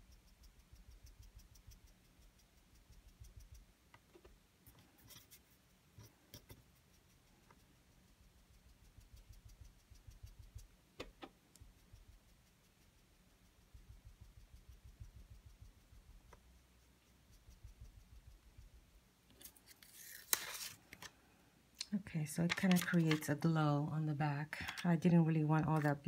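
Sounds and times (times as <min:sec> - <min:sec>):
foam tool rubbing on paper: 0:19.4 - 0:20.8.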